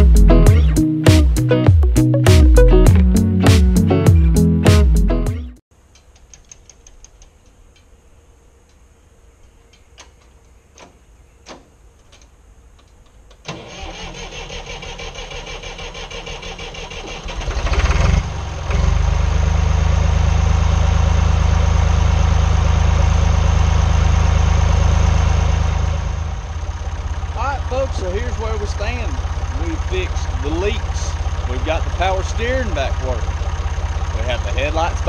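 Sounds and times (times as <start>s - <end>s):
diesel engine cranking: 8.6s - 35.0s
diesel engine running: 13.5s - 35.0s.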